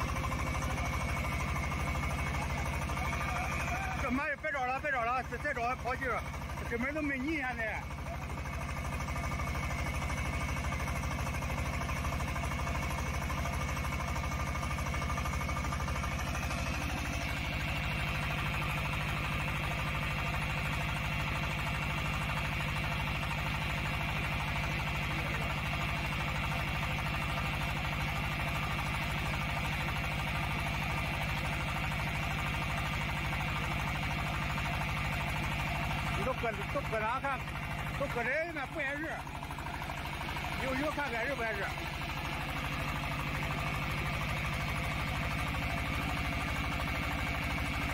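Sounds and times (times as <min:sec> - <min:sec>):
drilling rig engine running: 0:00.0 - 0:47.9.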